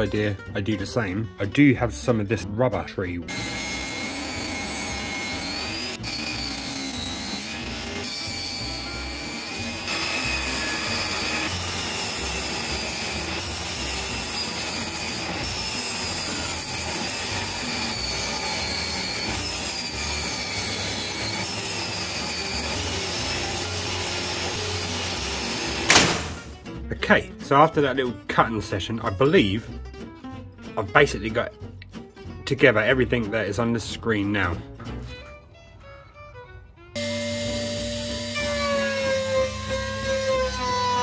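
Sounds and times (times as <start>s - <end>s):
table saw cutting wood: 3.3s - 26.6s, 37.0s - 41.0s.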